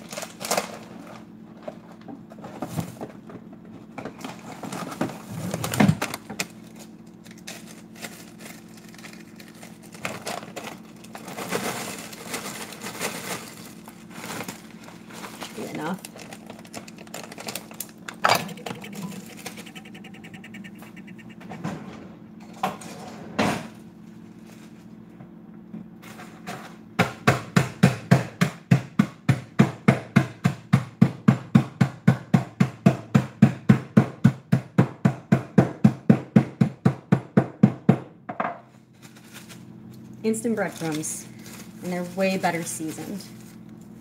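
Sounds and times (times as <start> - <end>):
croutons being smashed: 5.9 - 18.1.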